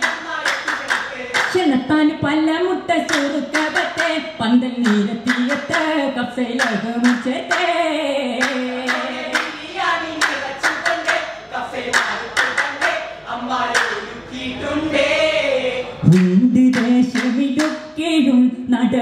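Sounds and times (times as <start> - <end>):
men singing in unison: 0.0 - 1.5, 8.3 - 17.0
sharp hand claps: 0.0 - 1.6, 3.1 - 4.2, 4.8 - 5.9, 6.6 - 7.7, 8.4 - 9.6, 10.2 - 11.2, 11.9 - 13.0, 13.7 - 14.0, 16.1 - 17.9.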